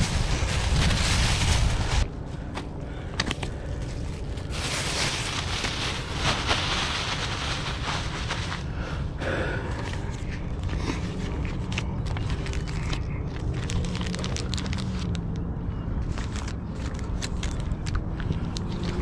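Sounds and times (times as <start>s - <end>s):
wind buffeting microphone: 0.0s - 2.3s
paper and plastic rustling: 0.0s - 8.7s, 9.7s - 15.3s, 16.0s - 19.0s.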